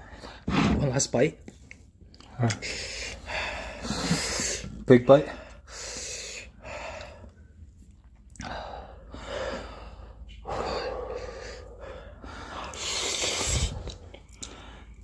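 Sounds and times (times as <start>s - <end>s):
men gasping and breathing hard: 2.4s - 7.4s, 8.4s - 15.0s
slurping: 12.6s - 14.6s.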